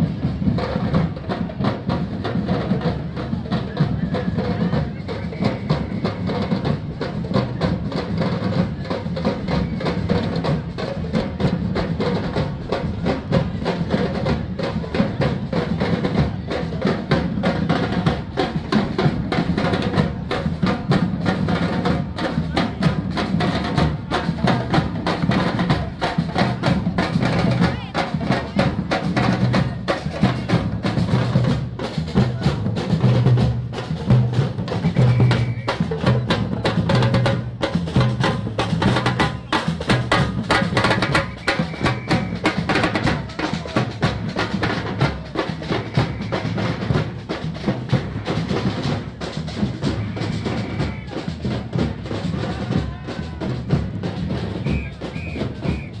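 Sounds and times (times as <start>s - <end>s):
marching bass drums: 0.0s - 56.0s.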